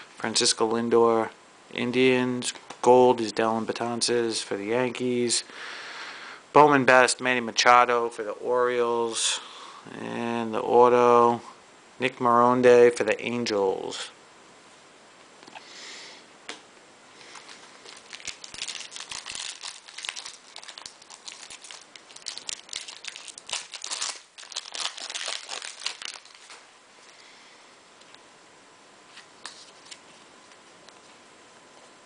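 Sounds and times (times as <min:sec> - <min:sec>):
foil wrapper tearing and crinkling: 0:17.8 - 0:26.6.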